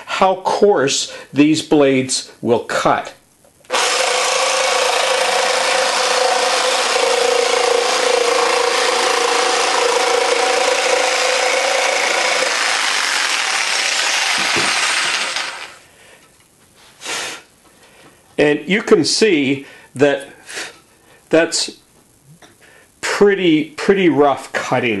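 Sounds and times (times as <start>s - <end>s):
jigsaw cutting plywood: 3.7s - 15.8s.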